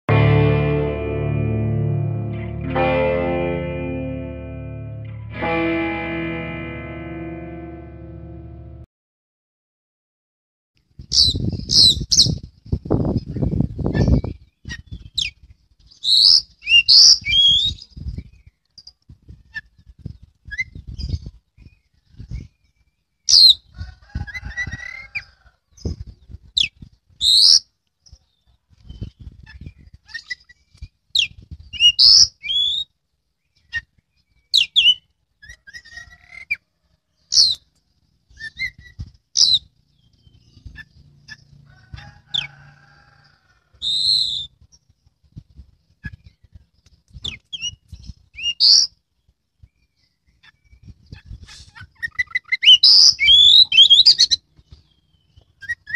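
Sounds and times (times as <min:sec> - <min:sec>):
bird singing whistled notes: 0:43.8 - 0:44.6, 0:52.1 - 0:54.4.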